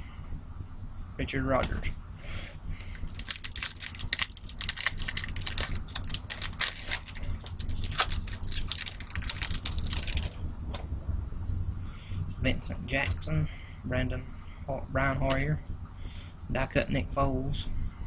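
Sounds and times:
card pack wrapper crinkling: 2.8 - 10.4.

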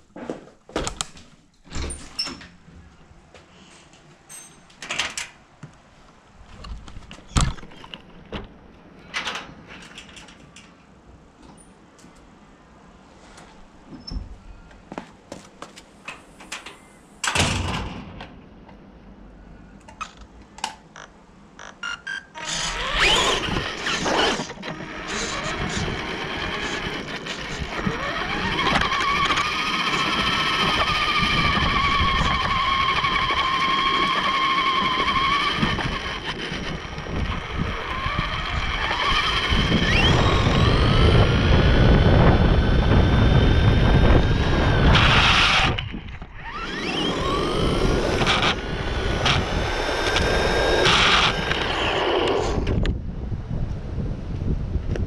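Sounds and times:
toy car motor whining: 22.1 - 52.8.

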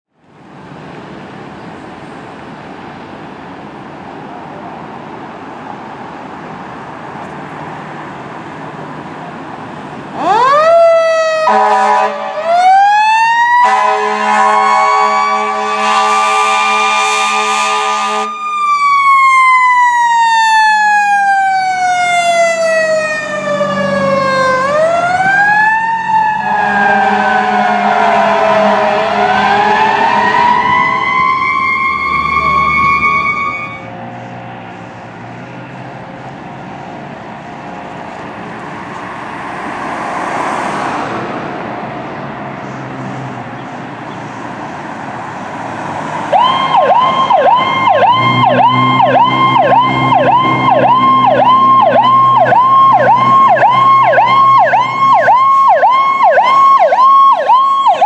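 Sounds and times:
fire engine rumble: 0.1 - 58.0
mechanical siren wailing: 10.2 - 34.0, 46.3 - 58.0
air horn blasts: 11.4 - 12.5, 13.6 - 18.4, 26.4 - 30.7, 32.3 - 33.9.

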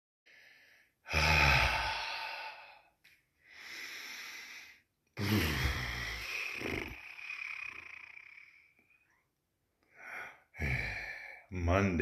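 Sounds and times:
man breathing heavily: 0.3 - 7.7, 9.8 - 11.5.

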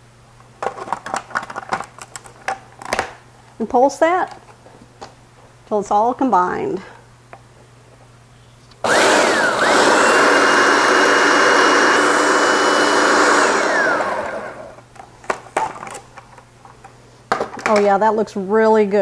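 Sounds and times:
food processor motor whine: 8.8 - 14.8.

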